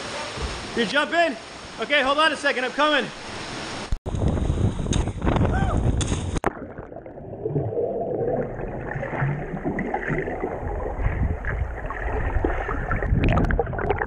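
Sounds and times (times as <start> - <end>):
water splashing: 6.0 - 14.0
muffled underwater rush and bubbling: 6.3 - 14.0.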